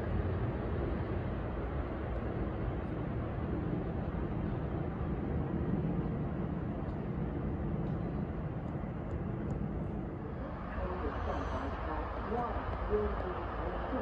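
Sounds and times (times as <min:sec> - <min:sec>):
distant train rumble: 0:00.0 - 0:14.0.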